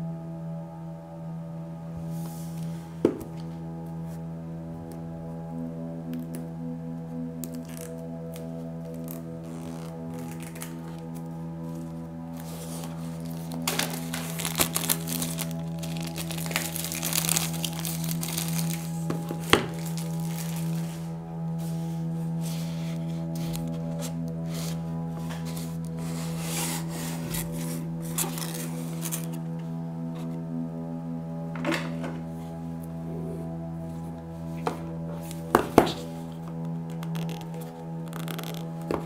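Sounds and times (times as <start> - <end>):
background music: 0.0 - 39.0
plastic shrink-wrap crinkling: 8.9 - 11.1, 12.4 - 21.0
cardboard boxes rustling: 9.9 - 21.1, 22.4 - 29.4.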